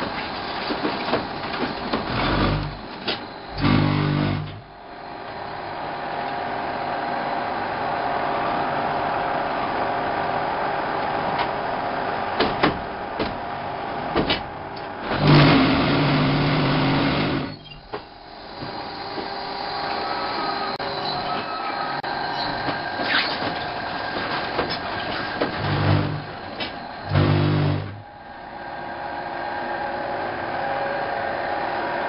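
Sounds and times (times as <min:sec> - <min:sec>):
loud vibrator buzzing hum: 0:02.0 - 0:02.8, 0:03.5 - 0:04.9, 0:15.0 - 0:17.6, 0:25.5 - 0:28.2
machine mechanical din: 0:22.5 - 0:28.1.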